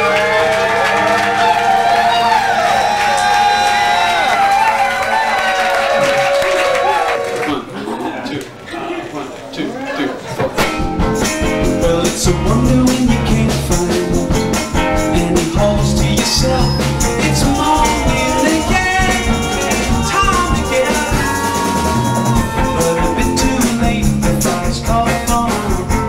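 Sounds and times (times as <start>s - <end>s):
bass: 0.0s - 4.6s, 10.6s - 26.0s
drum kit: 10.4s - 26.0s
guitar: 10.4s - 26.0s
held melody line: 10.9s - 26.0s.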